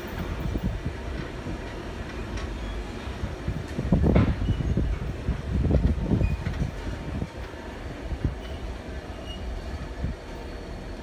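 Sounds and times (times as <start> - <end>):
train rumbling on track: 0.0 - 11.0
train wheels knocking: 3.6 - 7.6.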